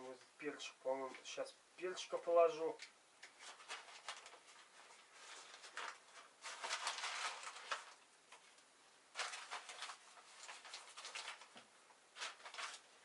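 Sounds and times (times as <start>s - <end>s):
spice packet crinkling: 3.2s - 8.5s, 9.1s - 13.0s.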